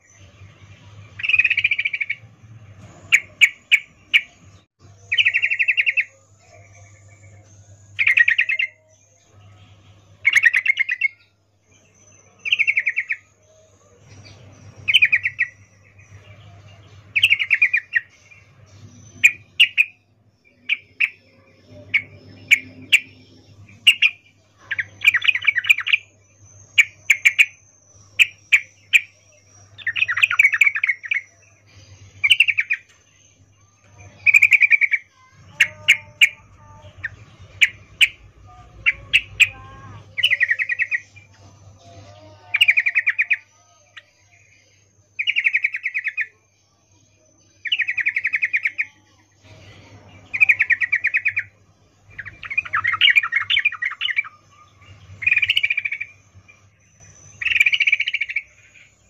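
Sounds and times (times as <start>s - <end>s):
bulbul chattering calls: 32.2s - 32.9s, 34.2s - 41.2s.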